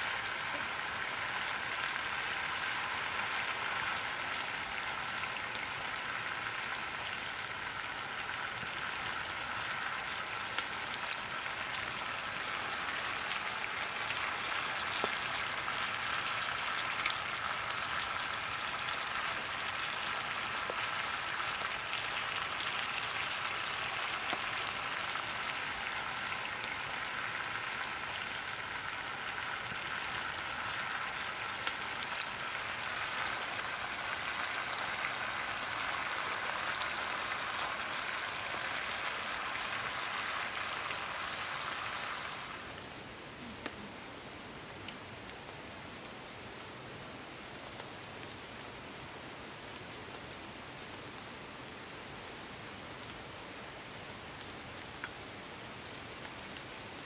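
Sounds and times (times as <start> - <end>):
chicken sizzling in sauce: 0.0 - 42.8.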